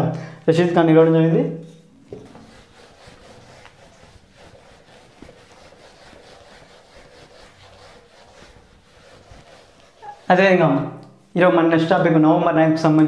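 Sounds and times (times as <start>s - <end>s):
duster rubbing on whiteboard: 1.6s - 11.9s.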